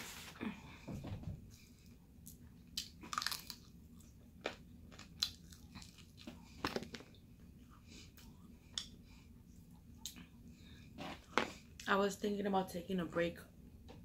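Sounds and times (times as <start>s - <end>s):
fried chicken crunching while chewed: 2.8s - 7.0s.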